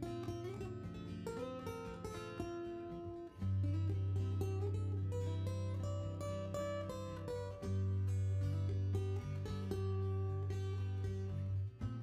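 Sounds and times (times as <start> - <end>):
acoustic guitar melody: 0.0 - 12.0.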